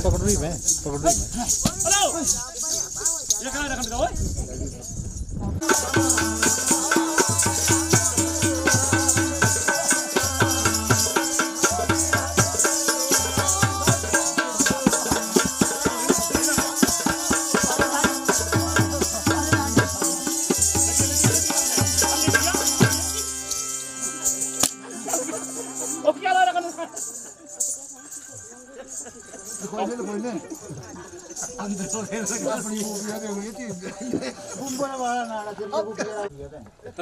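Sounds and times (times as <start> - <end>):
shaken percussion shimmer: 0.6 - 33.7
tabla playing fast rhythm: 5.6 - 26.8
harmonium: 5.6 - 30.6.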